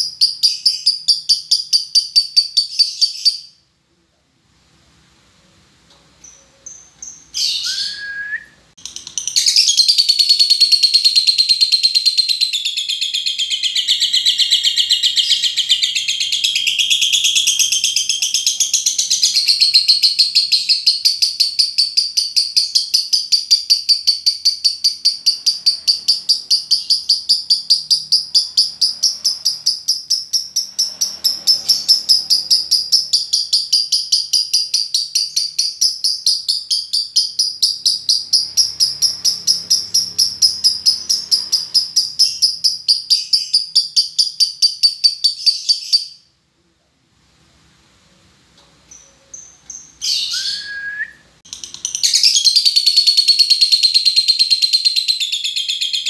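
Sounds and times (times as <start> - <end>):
lovebird chirps: 0.0 - 3.7, 6.2 - 46.4, 48.8 - 56.0
high-pitched chattering bird trill: 8.8 - 46.2, 51.5 - 56.0.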